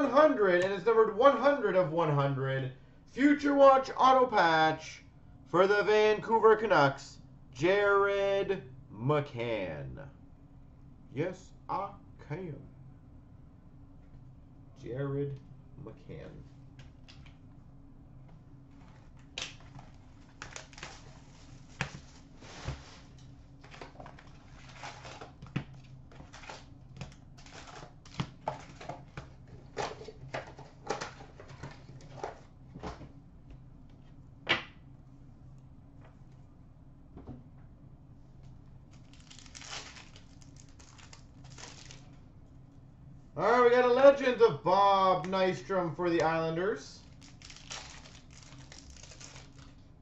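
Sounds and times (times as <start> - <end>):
card packs rustling: 18.8 - 32.5, 38.9 - 42.1, 47.0 - 49.8.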